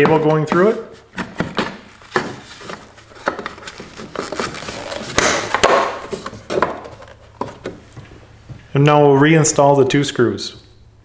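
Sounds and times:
plastic rubbing scrape: 1.0 - 7.7.

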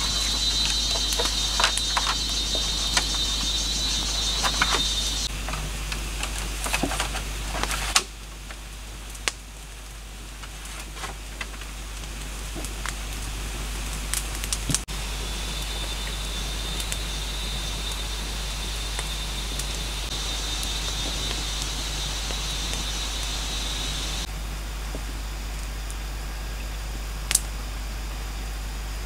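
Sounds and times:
high insect buzz: 0.0 - 5.3, 14.9 - 24.3
campfire crackling and popping: 0.0 - 24.3, 27.3 - 27.5.

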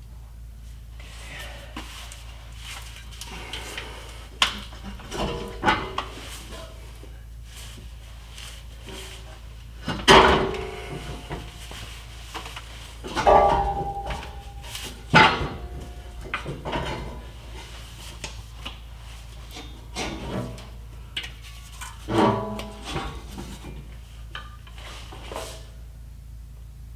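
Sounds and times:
metal clunks and scraping: 2.9 - 7.1, 8.6 - 25.8
short metallic ring: 13.2 - 16.3.

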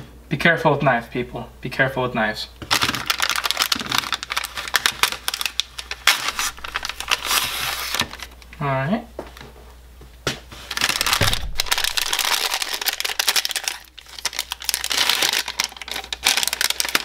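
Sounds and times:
plastic bag crinkling: 2.6 - 8.4, 10.6 - 17.0.

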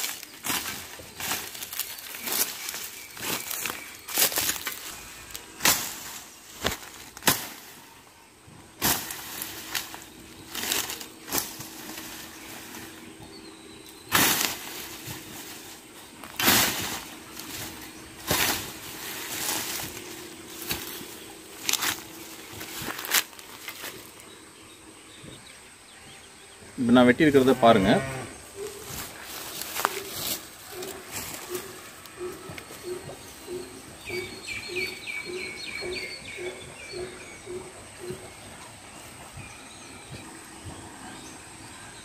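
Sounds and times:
billhook chopping brush: 14.1 - 15.5.

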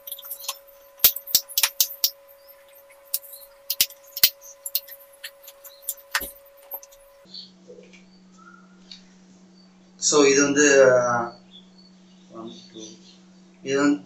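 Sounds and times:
faint steady tone: 0.0 - 7.3.

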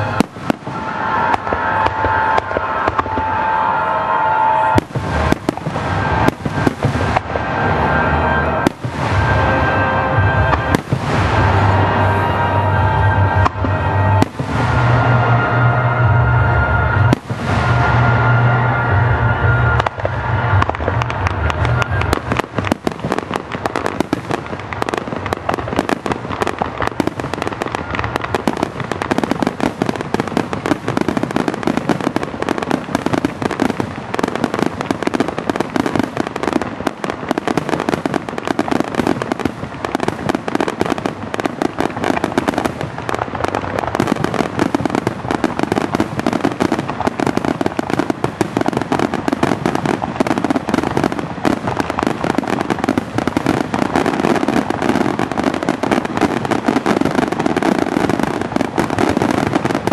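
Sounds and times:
fireworks bursting: 0.0 - 59.9.

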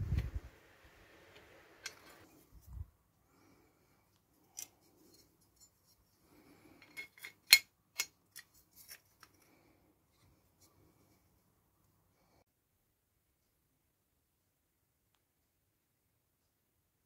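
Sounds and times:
small metal parts clicking: 6.8 - 9.5.

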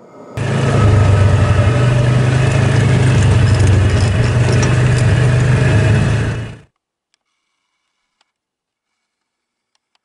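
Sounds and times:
vehicle engine running: 0.4 - 6.7.

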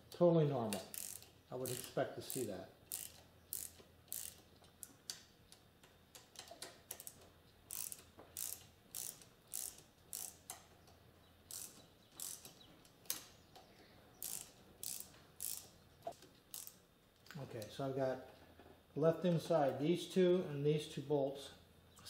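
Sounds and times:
socket ratchet clicking: 0.7 - 10.7, 11.5 - 13.3, 14.2 - 16.8.

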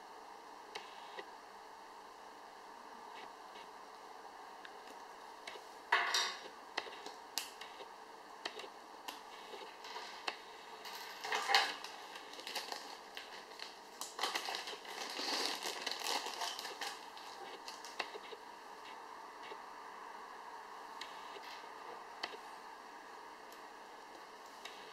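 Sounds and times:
plastic bag crinkling: 9.7 - 10.2, 10.8 - 18.0.

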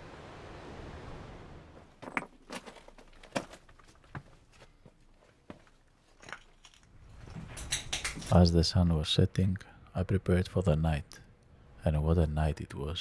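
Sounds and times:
footsteps on stone floor: 2.5 - 6.7.

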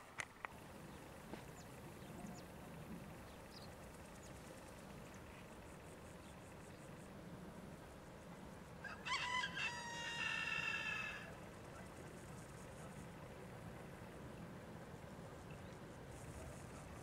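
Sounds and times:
distant train rumbling: 0.0 - 17.0
bird chirps: 3.2 - 5.4.

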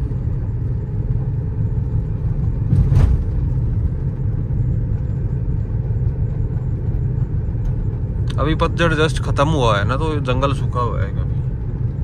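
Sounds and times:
vehicle engine and road rumble: 0.0 - 12.0
vehicle bump: 2.4 - 4.2.

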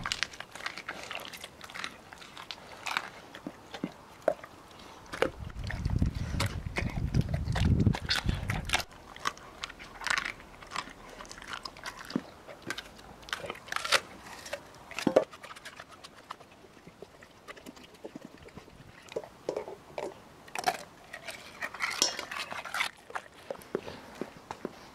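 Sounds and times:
dog crunching bones: 0.0 - 24.9
wet chewing: 0.0 - 24.9.

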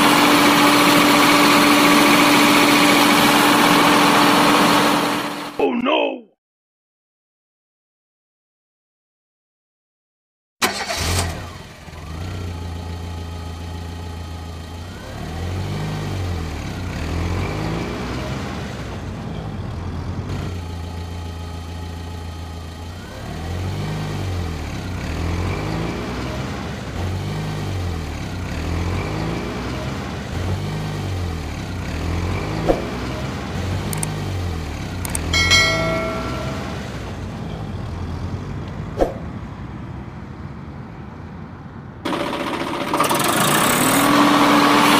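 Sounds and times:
sharp clicks: 35.0 - 35.3
short high beep: 35.3 - 36.9.

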